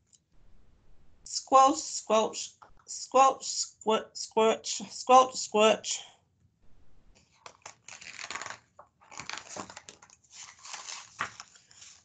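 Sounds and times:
book pages rustling: 0:07.2 - 0:12.0.

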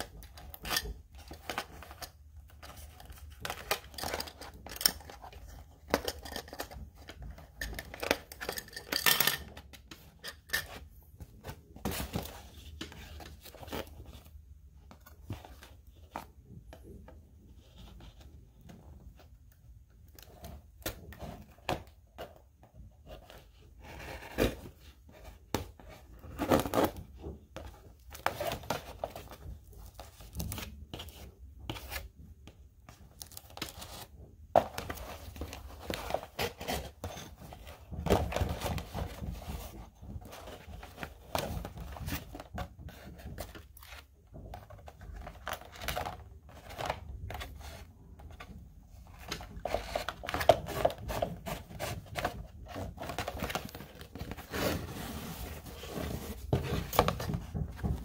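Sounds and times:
cardboard rustling: 0:09.5 - 0:18.4, 0:20.2 - 0:58.0.

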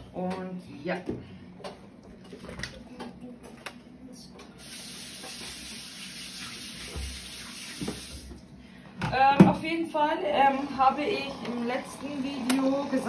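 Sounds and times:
water rushing into washing machine: 0:04.6 - 0:08.4, 0:10.3 - 0:13.0.

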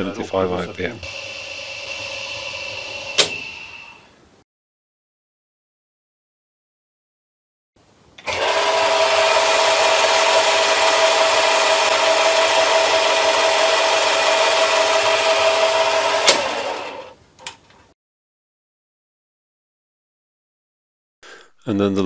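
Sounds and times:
lathe gear whine and rattle: 0:01.1 - 0:03.7, 0:08.2 - 0:17.1.

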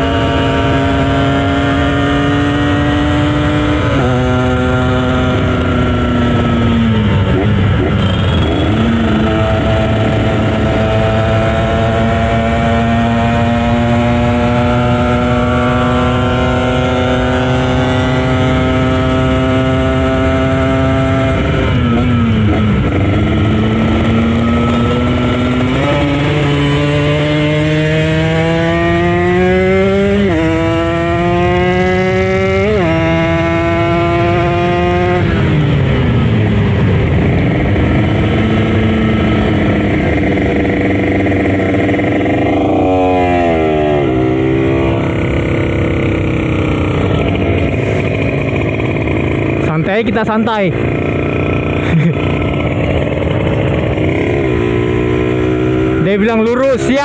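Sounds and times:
two-stroke motorcycle engine revving: 0:00.0 - 0:57.0.

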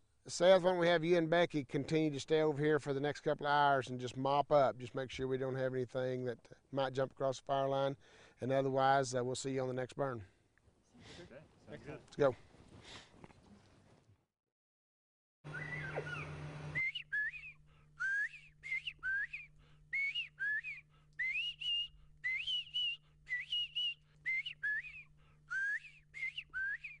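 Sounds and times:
quail whistled calls: 0:15.5 - 0:20.6.

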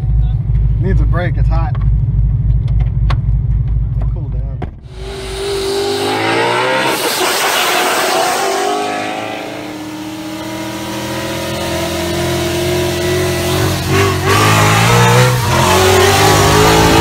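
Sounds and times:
engine accelerating hard: 0:04.9 - 0:17.0.

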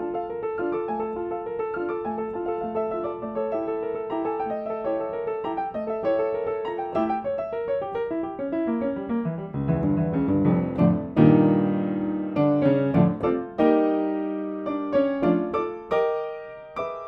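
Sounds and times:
solo classical piano: 0:00.0 - 0:17.0.

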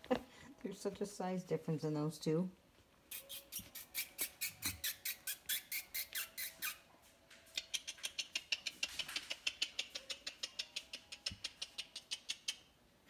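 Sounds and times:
puppies squeaking: 0:03.1 - 0:06.9, 0:07.5 - 0:12.7.

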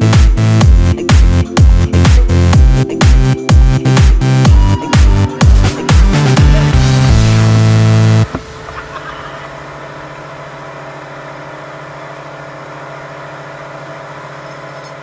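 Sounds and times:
motorboat engine humming: 0:01.6 - 0:15.0.

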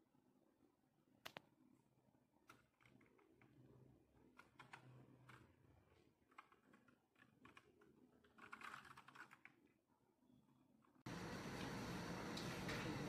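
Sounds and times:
mechanical keyboard clicks: 0:06.3 - 0:09.6.

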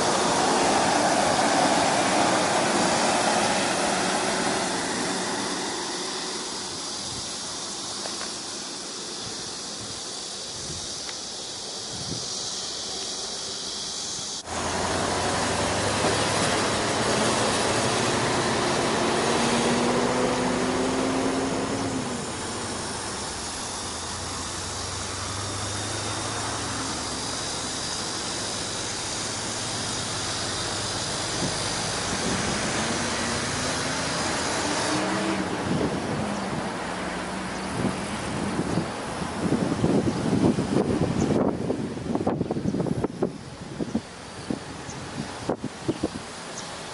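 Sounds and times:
car engine note rising and falling: 0:00.0 - 0:09.0, 0:14.4 - 0:41.5
car road noise: 0:00.0 - 0:46.9.

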